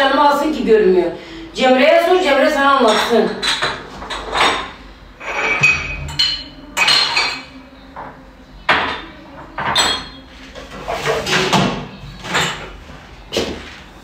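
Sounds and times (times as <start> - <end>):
dishes and glasses clinking: 2.9 - 10.3, 12.2 - 12.8.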